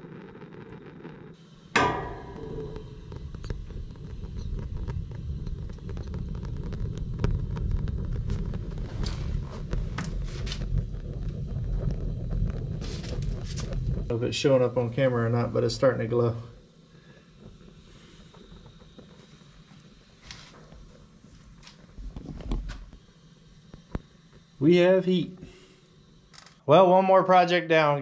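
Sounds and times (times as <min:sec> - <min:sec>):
gas burner ignition: 0:00.7 - 0:28.0.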